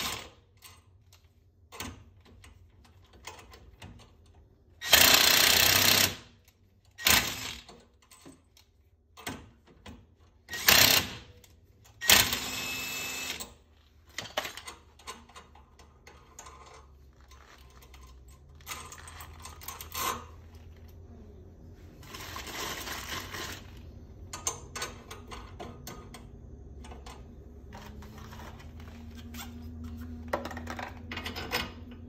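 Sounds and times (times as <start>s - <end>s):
impact wrench bursts: 4.8s - 6.3s, 7.0s - 7.7s, 10.5s - 11.3s, 12.0s - 13.6s.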